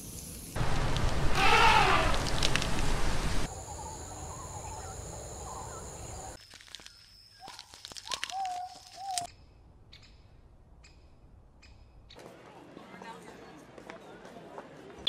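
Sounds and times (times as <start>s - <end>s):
insect high drone: 0.0s - 6.4s.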